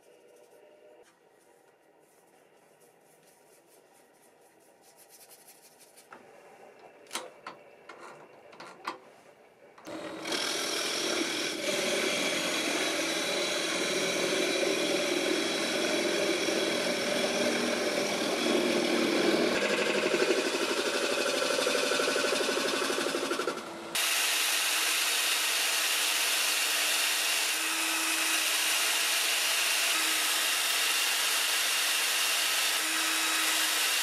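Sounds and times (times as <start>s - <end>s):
wood lathe running: 9.8s - 34.0s.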